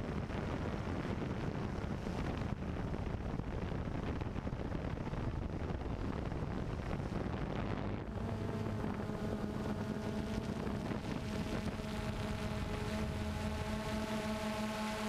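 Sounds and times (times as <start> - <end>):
wind on microphone: 0.0 - 15.0
drone rotors humming: 6.7 - 15.0.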